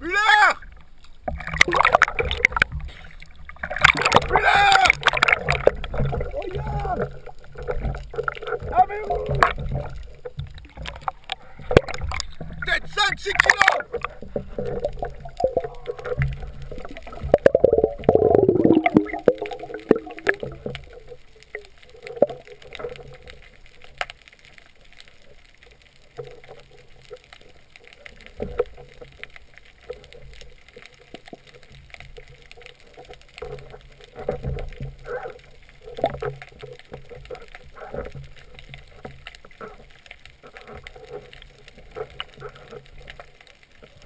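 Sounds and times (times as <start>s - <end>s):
muffled underwater movement: 0.0s - 44.0s
gurgling rumble: 0.6s - 23.5s
faint clicks: 0.6s - 44.0s.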